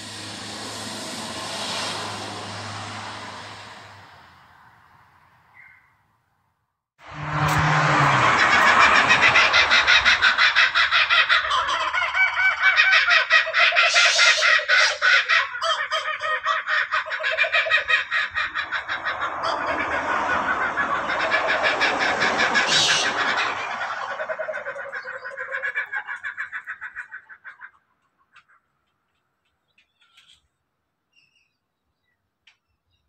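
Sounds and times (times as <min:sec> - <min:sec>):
kookaburras laughing chorus: 0:07.5 - 0:28.6.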